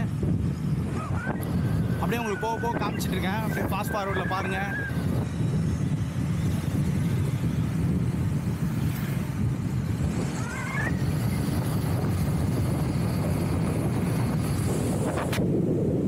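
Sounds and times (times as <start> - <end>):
wind buffeting microphone: 0.0 - 16.0
brief rising tone: 10.1 - 11.1.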